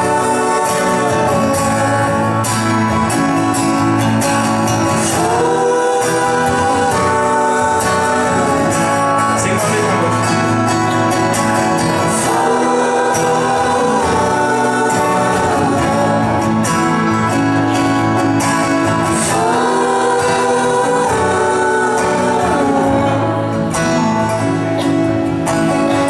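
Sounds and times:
acoustic guitars strumming: 0.0 - 26.0
person singing long notes: 19.0 - 24.6.

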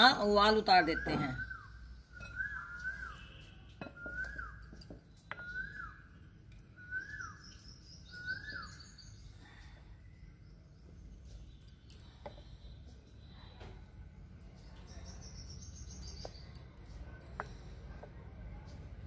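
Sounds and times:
faint high bird chirps: 0.0 - 17.8
bird whistled call: 0.9 - 9.1.

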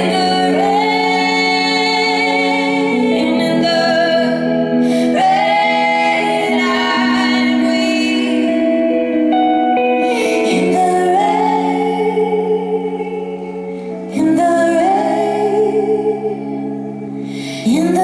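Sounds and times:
electric guitar: 0.0 - 18.0
women singing in harmony: 0.0 - 18.0.

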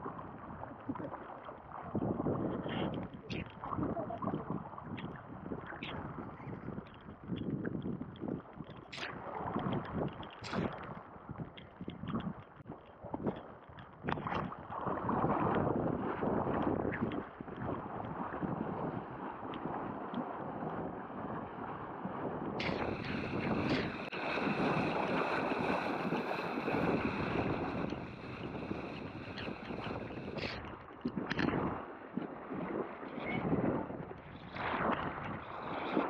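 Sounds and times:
wind buffeting microphone: 0.0 - 36.0
rough surf: 14.1 - 36.0
bright hiss: 22.6 - 30.4.

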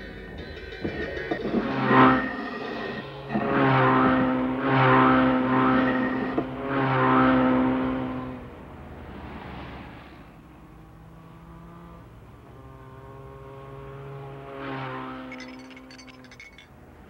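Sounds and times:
layered humming drone: 0.0 - 17.0
glassy tinkling: 15.3 - 16.8.

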